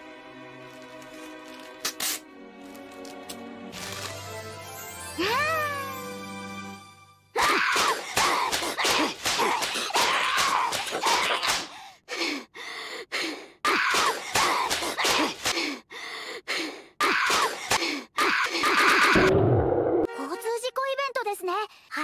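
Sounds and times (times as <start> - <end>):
paper fan slap cracks: 1.8 - 2.2, 7.8 - 11.7.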